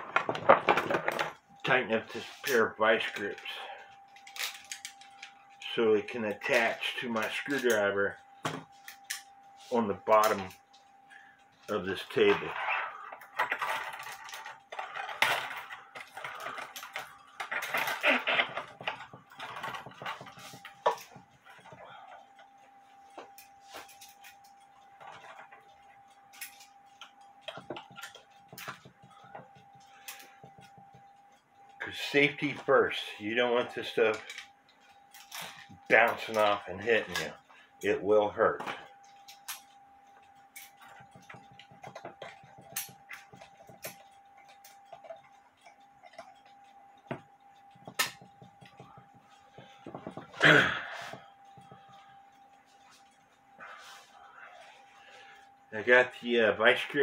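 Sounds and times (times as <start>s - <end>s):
faint steady tone: 0.8s - 57.0s.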